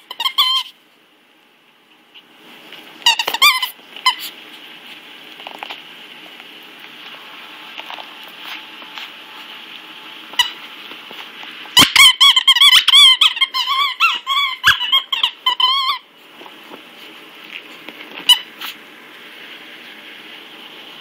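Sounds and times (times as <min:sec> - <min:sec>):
squeaky toy squeaks: 0:00.0 - 0:00.8, 0:03.0 - 0:04.3, 0:11.8 - 0:16.1.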